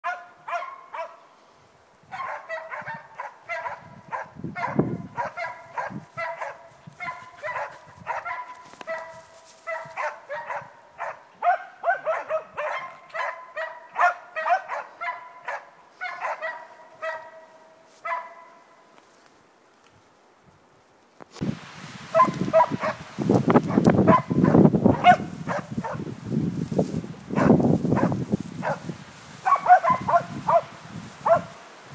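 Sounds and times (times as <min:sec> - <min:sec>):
dog barking: 0:00.0 - 0:01.2, 0:02.1 - 0:18.6, 0:22.1 - 0:23.0, 0:23.7 - 0:26.1, 0:27.4 - 0:31.6.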